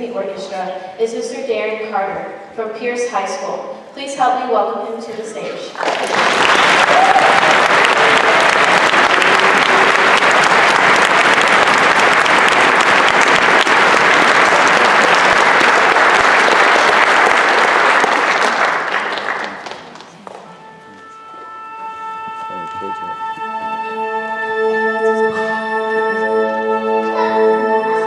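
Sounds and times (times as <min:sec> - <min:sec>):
audience applauding: 0:05.7 - 0:20.8
held musical note: 0:20.4 - 0:28.0.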